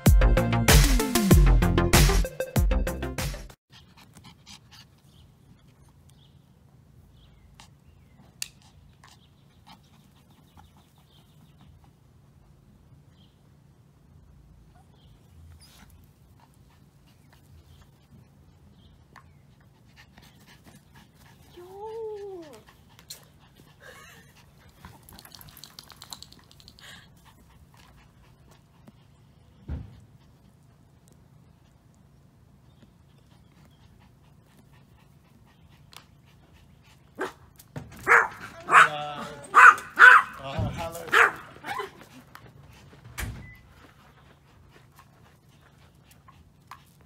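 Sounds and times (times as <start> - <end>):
dog panting: 3.7 - 6.1, 7.2 - 12.7, 15.5 - 21.7, 22.4 - 37.6, 41.1 - 47.0.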